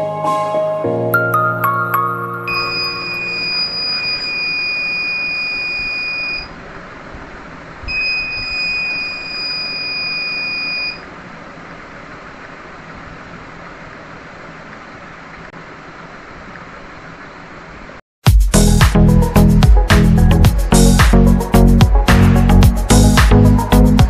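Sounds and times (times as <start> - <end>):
electronic buzzer horn beeping: 2.4 - 6.5, 7.9 - 11.0.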